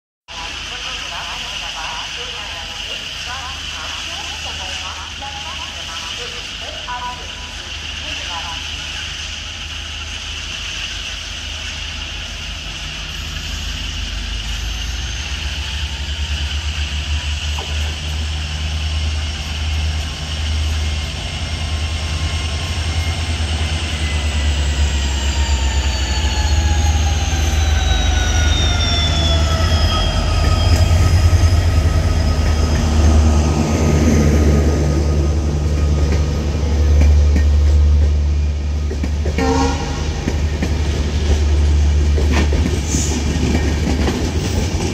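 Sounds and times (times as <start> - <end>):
diesel locomotive engine rumble: 0.3 - 44.9
train wheels clattering on rails: 17.5 - 18.4, 35.7 - 44.9.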